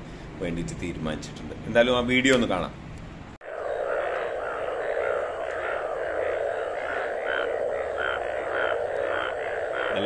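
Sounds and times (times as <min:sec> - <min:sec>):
frogs croaking chorus: 0:03.4 - 0:10.0
louder single frog calls: 0:03.4 - 0:10.0.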